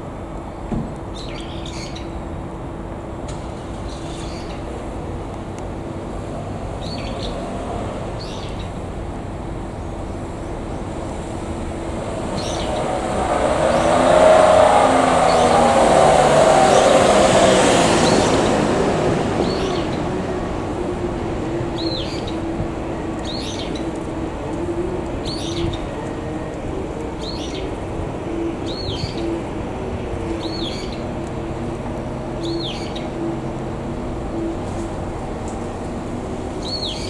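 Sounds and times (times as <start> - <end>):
diesel locomotive idling: 2.2 - 13.6, 18.2 - 37.0
loud rushing noise: 8.8 - 36.7.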